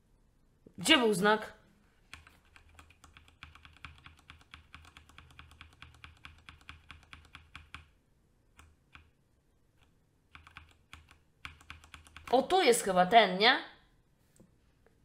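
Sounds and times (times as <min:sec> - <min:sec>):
computer keyboard keys tapping: 0:02.0 - 0:09.1, 0:09.8 - 0:12.4.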